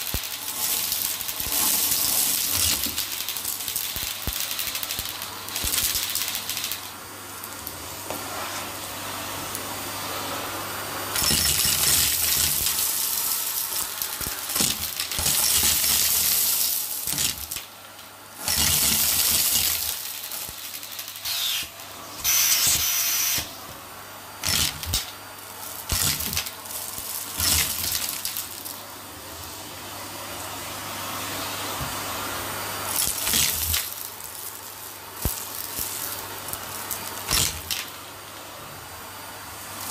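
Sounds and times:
debris rattling up vacuum hose: 0.0s - 7.0s, 11.2s - 21.6s, 24.4s - 28.8s, 32.9s - 38.0s
vacuum cleaner suction: 0.0s - 39.9s.

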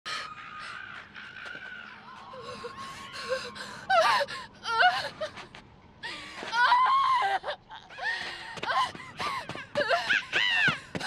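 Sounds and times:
human howling calls: 0.1s - 4.9s.

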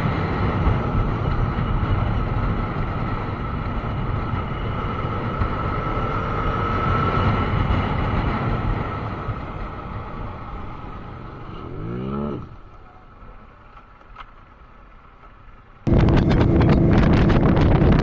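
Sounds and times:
wind rushing over microphone: 0.0s - 12.7s, 15.9s - 18.0s
steady high whine: 15.8s - 18.0s
motorcycle engine running: 15.9s - 18.0s.

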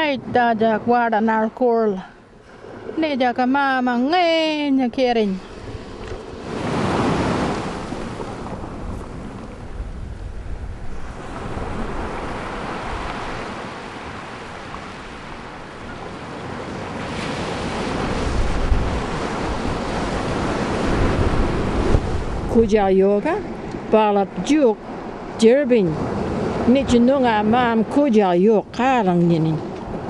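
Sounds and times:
sea surf washing onto beach: 5.2s - 28.2s.

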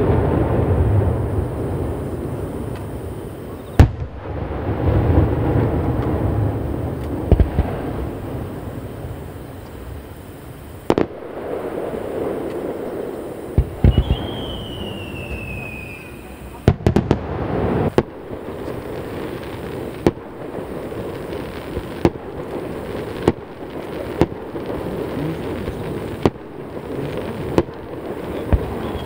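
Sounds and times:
firework shells bursting: 0.0s - 29.0s
whistling firework shell: 10.6s - 18.8s, 22.8s - 29.0s.

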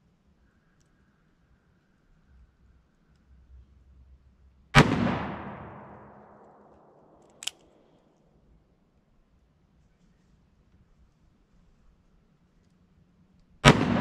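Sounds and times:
revolver shot with echo: 4.8s - 7.0s.

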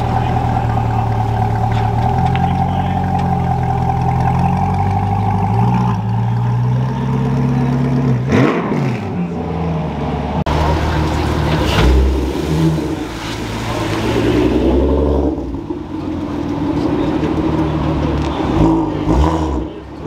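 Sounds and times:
car engine idling: 0.0s - 8.5s, 9.1s - 20.0s
engine revving: 0.0s - 20.0s.

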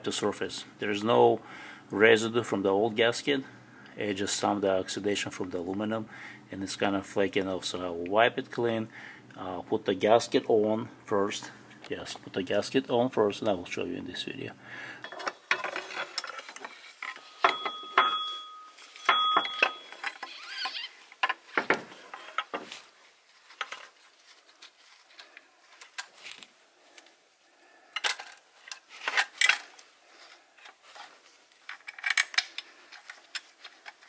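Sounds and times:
metallic clicks and scrapes: 15.0s - 17.5s, 30.6s - 34.0s.

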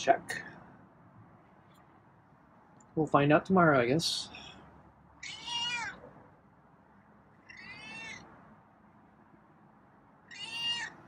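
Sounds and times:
cat meowing: 5.2s - 6.1s, 7.4s - 8.3s, 10.2s - 11.0s.

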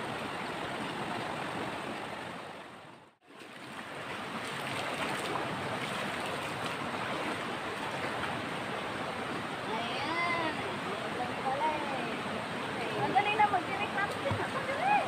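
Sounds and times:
river water rushing over rocks: 0.0s - 15.0s
water sloshing around wading legs: 3.2s - 8.6s.

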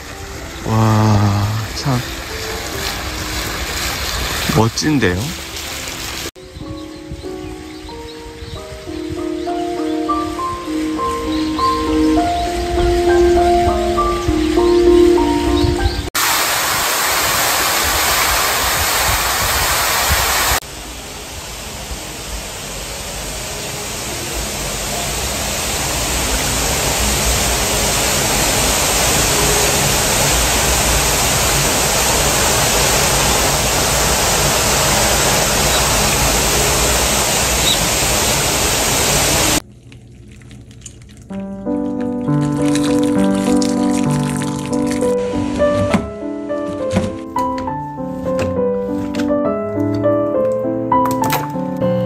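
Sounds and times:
outdoor rushing hiss: 0.0s - 6.4s, 16.1s - 39.6s.

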